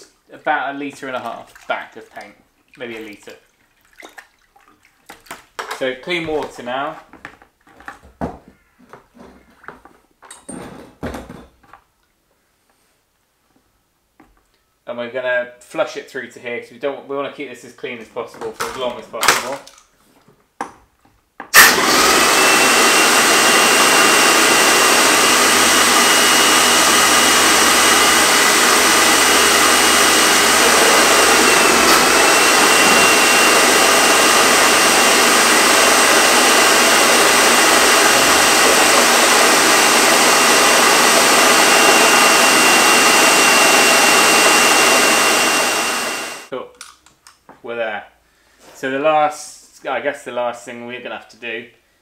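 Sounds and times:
paint sprayer hissing water: 23.8 - 45.3.

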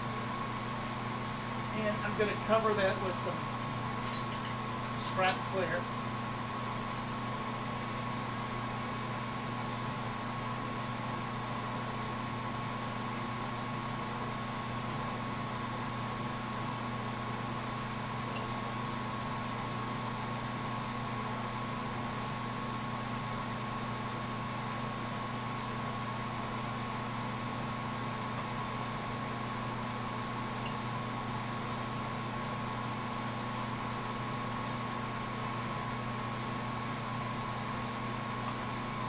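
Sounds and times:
electrical hum: 0.0 - 39.0.

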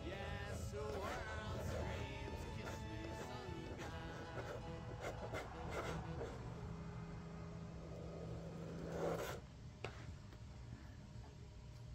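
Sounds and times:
pens scratching on paper: 0.5 - 6.4, 8.5 - 10.0.

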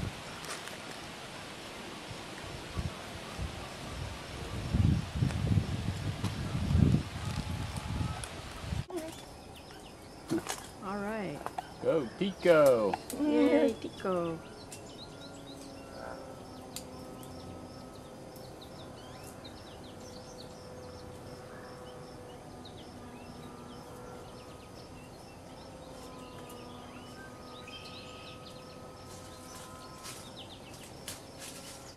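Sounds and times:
birds chirping: 2.4 - 31.9
steady low hum: 9.0 - 31.9.

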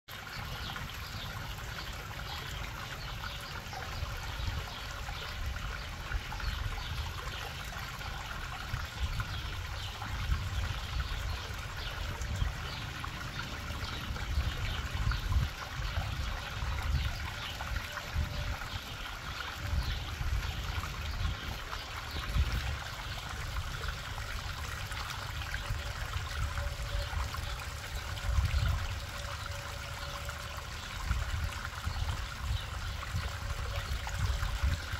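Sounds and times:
waterfall splashing into pond: 0.1 - 34.9
low rumbling on microphone: 8.5 - 34.9.

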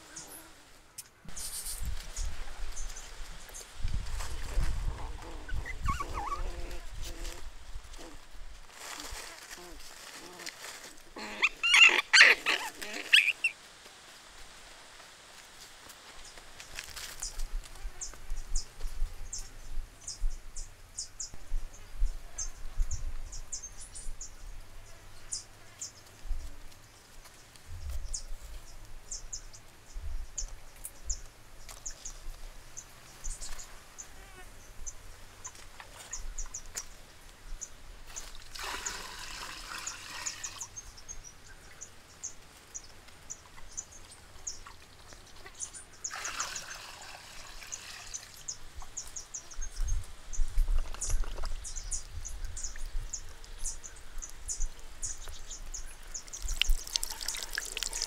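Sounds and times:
water trickling over wheel: 38.1 - 40.8, 46.0 - 48.5, 56.2 - 58.0
water splashing down: 56.4 - 58.0.

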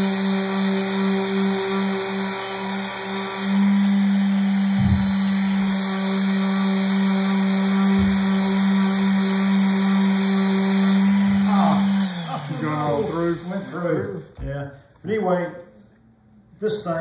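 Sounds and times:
orbital sander running: 0.0 - 13.9
low thumps: 4.7 - 5.4, 7.8 - 8.4.

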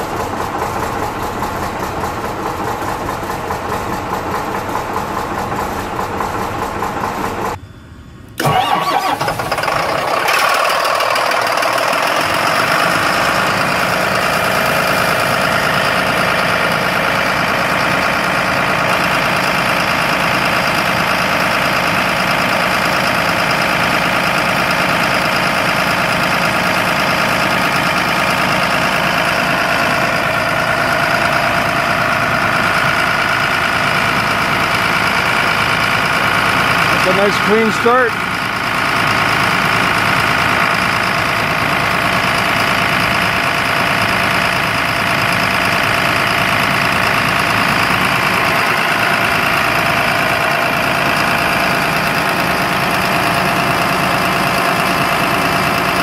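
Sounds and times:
diesel engine cranking and starting: 0.0 - 7.6, 8.2 - 56.0
bus diesel engine idling: 0.0 - 56.0.

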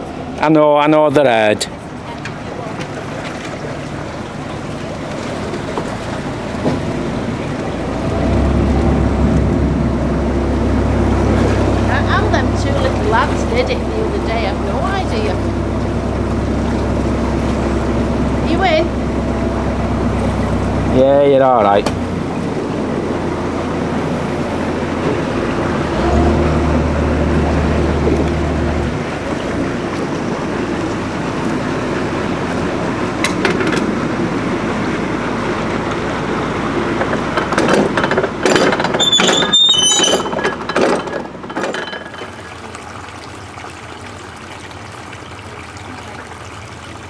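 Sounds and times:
boat engine running: 0.0 - 47.0
water washing in a lock: 0.0 - 47.0
metallic clinks and knocks: 37.5 - 42.3.

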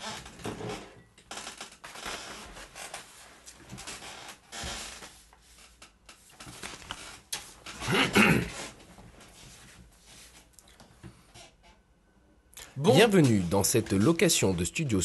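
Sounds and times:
paper rustling: 6.3 - 7.6.

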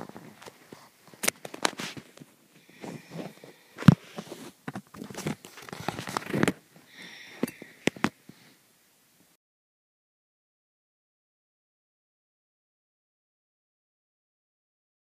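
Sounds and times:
plush toys rustling: 0.0 - 6.9.

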